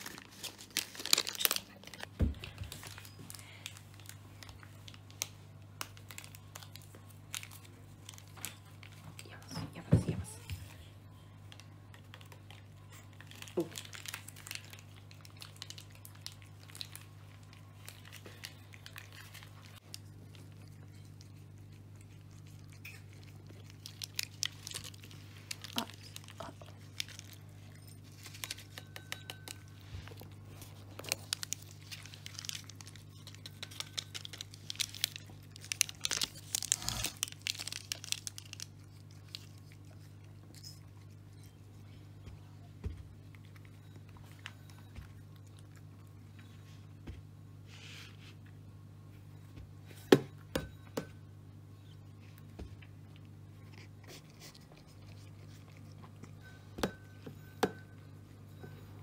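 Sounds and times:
cats lapping from bowls: 14.9s - 27.0s.

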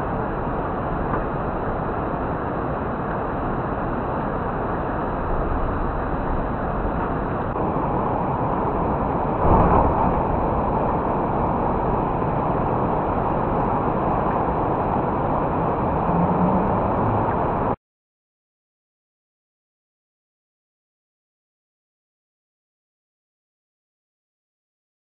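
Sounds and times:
thunder rumbling: 5.2s - 17.8s
thunderstorm rushing noise: 5.2s - 17.8s.

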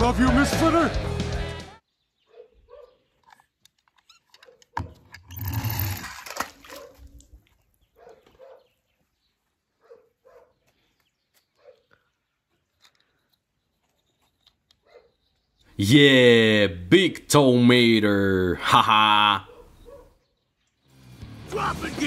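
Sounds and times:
toy splashing into pool: 5.0s - 7.2s.

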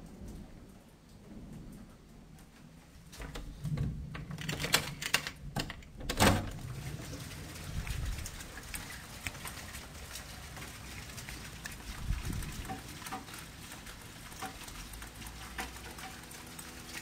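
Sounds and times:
irregular clicks and knocks: 3.1s - 6.6s.

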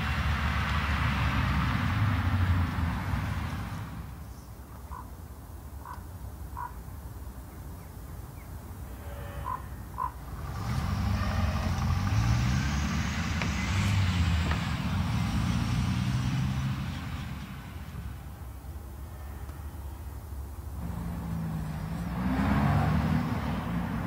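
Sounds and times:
car driving by: 0.0s - 4.3s, 8.9s - 19.8s, 20.6s - 24.0s.

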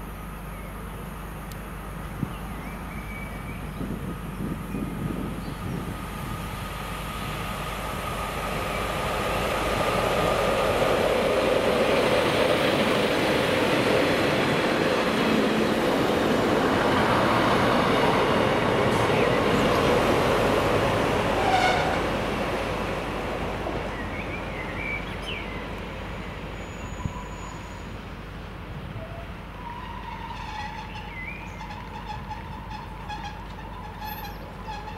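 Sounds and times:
train rumbling past: 0.0s - 34.9s
train squeal: 21.3s - 22.0s, 26.1s - 28.0s, 29.0s - 34.9s.

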